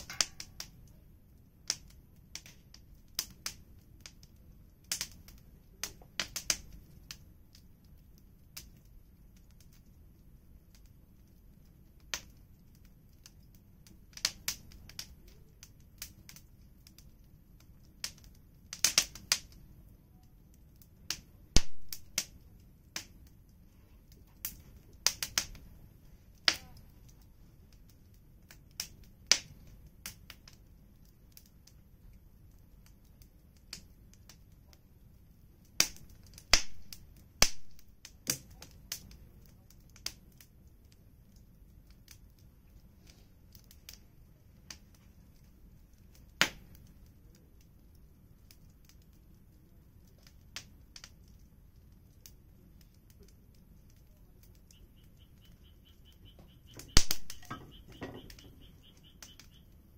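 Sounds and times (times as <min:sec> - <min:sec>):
wood fire crackling: 0:00.0 - 0:59.9.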